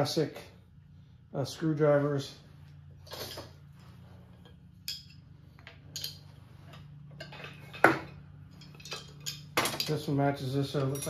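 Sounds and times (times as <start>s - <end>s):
faint steady hum: 0.0s - 11.0s
metal tools clinking: 4.4s - 11.0s.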